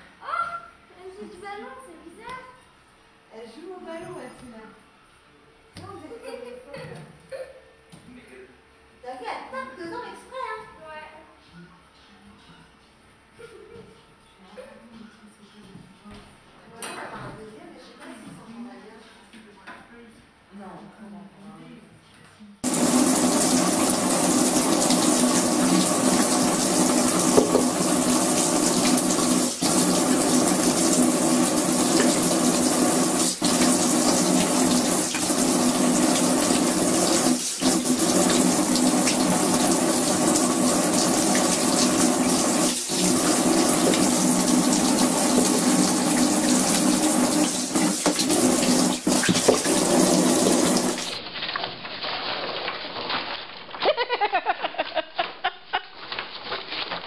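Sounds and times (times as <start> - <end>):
shower water splashing into tray: 22.6 - 52.9.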